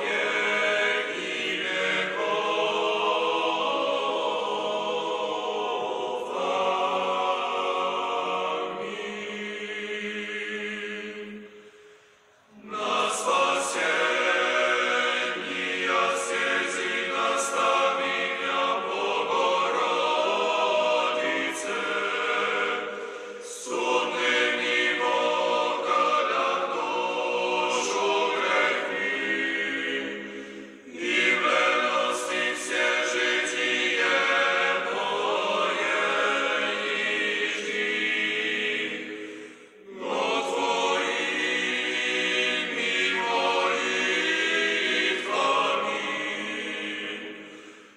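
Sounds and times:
choir singing slow chant: 0:00.0 - 0:47.9.

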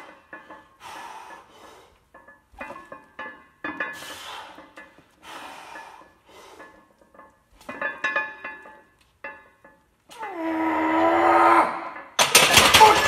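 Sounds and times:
forceful straining breaths: 0:00.0 - 0:02.2, 0:03.8 - 0:07.0
metal weight plates clinking: 0:00.0 - 0:10.2, 0:11.7 - 0:13.0.

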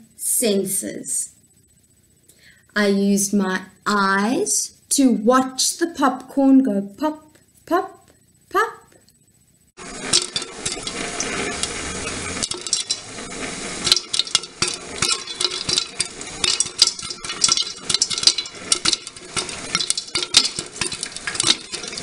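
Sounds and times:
pan sizzling: 0:09.8 - 0:22.0
popcorn popping: 0:09.8 - 0:22.0.

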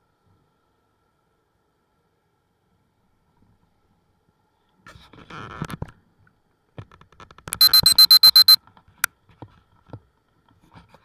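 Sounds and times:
rapid electronic beeping: 0:07.6 - 0:08.6.

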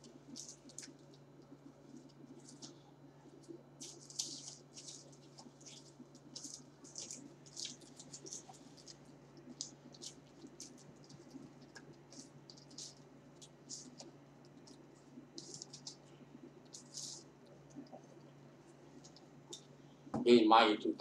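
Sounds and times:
chewing: 0:00.0 - 0:19.7
low steady hum: 0:00.0 - 0:21.0
paper wrapper crackling: 0:03.4 - 0:16.1, 0:16.7 - 0:17.8.

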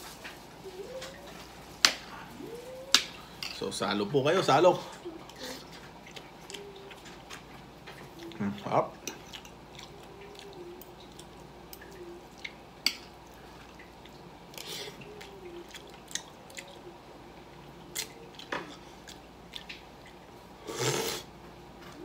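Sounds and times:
mouth chewing and squishing: 0:05.2 - 0:21.2.

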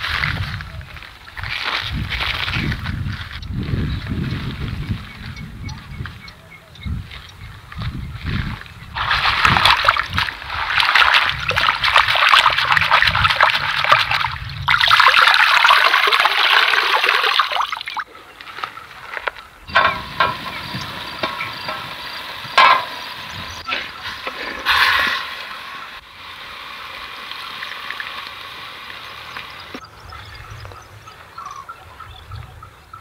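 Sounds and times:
water splashing and pouring: 0:09.0 - 0:18.1, 0:19.7 - 0:29.8.

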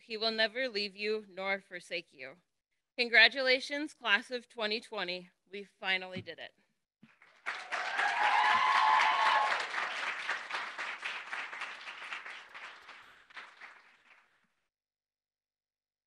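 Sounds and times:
audience clapping: 0:07.0 - 0:14.6.

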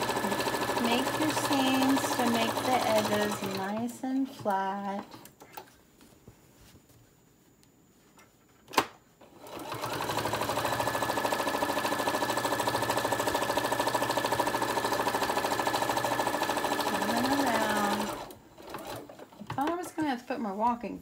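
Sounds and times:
electric sewing machine running: 0:00.0 - 0:03.9, 0:09.3 - 0:19.4.

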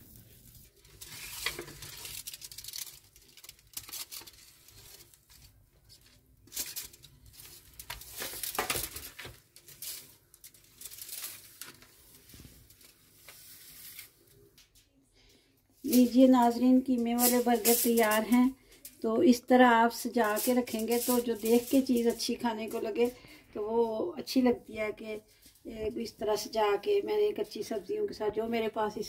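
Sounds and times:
paper rustling: 0:00.0 - 0:14.5, 0:15.9 - 0:19.0, 0:19.9 - 0:23.4.

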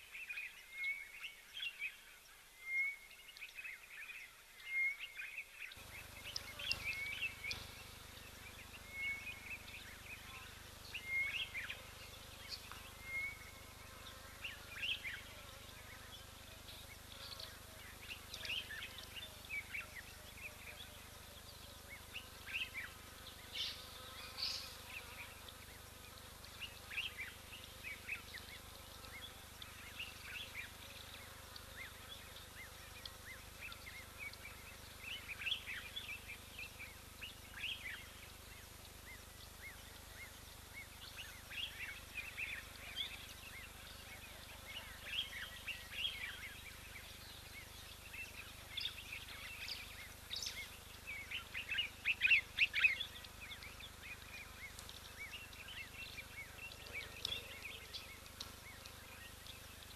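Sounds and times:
faint hiss of bush: 0:00.0 - 0:59.9
small birds chirping: 0:03.2 - 0:59.9.

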